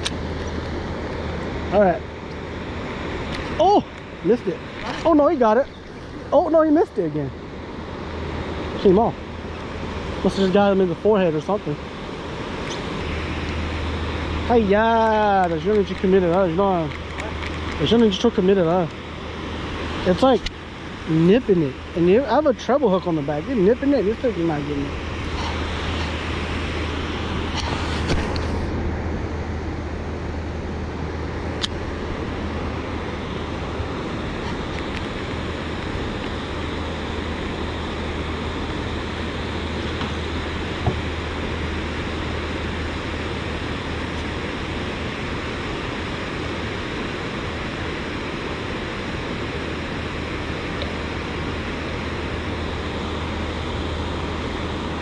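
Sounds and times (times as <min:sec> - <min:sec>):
wind: 0:00.0 - 0:55.0.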